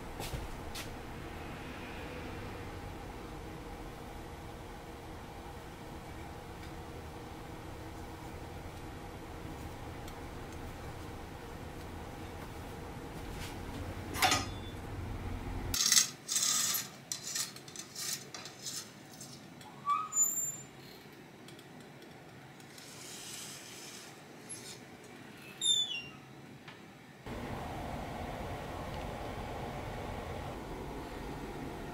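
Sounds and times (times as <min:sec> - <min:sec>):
metallic clinks and scrapes: 0:15.8 - 0:19.6
metal-on-metal squeaks: 0:19.6 - 0:20.7.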